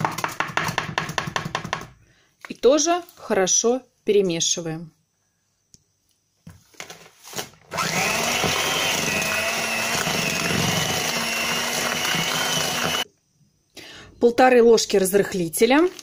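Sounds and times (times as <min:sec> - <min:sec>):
electric hand mixer whining: 0:07.7 - 0:13.1.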